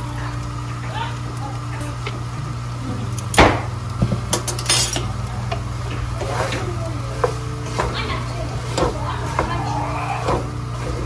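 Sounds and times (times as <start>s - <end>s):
steady low hum: 0.0s - 11.0s
wood knocking against pot: 8.7s - 10.5s.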